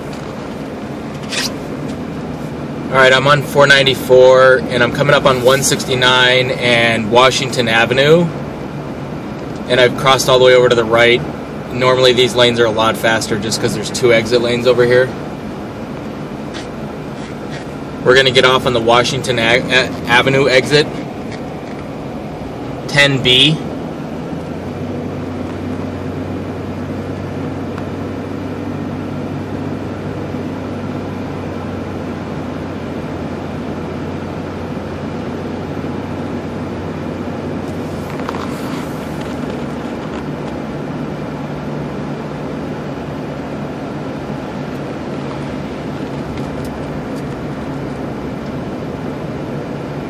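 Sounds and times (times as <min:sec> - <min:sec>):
car engine hum and tyre noise: 0:00.0 - 0:50.0.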